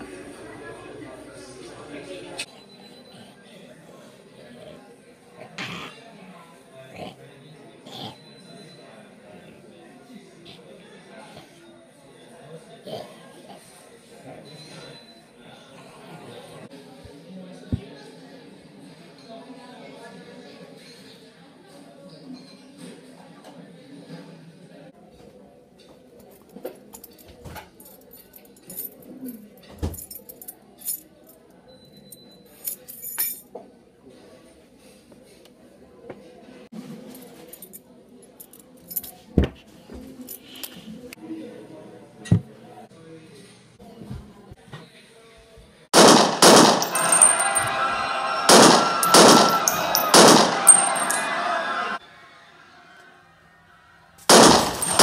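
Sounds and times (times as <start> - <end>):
echoing gunshots: 46.0 - 47.3, 48.5 - 51.2, 54.3 - 55.0.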